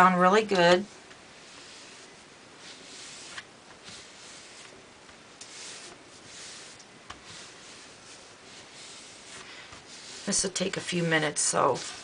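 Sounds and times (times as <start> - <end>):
hands rubbing paper: 1.4 - 4.8, 5.4 - 12.0.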